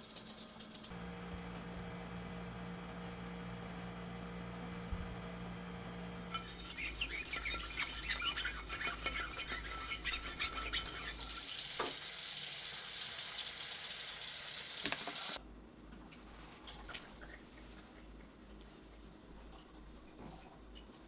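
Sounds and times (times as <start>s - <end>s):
tap water running: 6.3s - 15.4s
brush scrubbing a glass dish: 6.4s - 11.4s.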